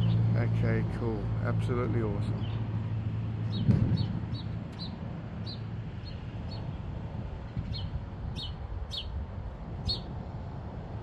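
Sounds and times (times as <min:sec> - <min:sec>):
bird chirping: 0:02.3 - 0:06.8, 0:07.5 - 0:09.2, 0:09.8 - 0:10.1.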